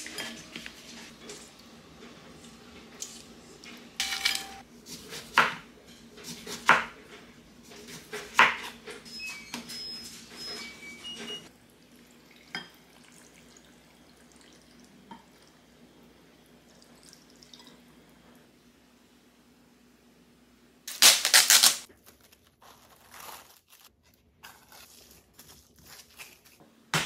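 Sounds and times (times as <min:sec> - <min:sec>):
utensils clinking against glass bowl: 0:04.0 - 0:04.6.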